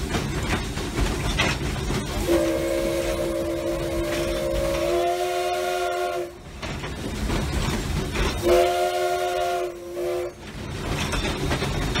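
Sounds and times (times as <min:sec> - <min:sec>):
steam locomotive running: 0:00.0 - 0:12.0
steam locomotive chime whistle: 0:02.2 - 0:06.4, 0:08.4 - 0:10.4.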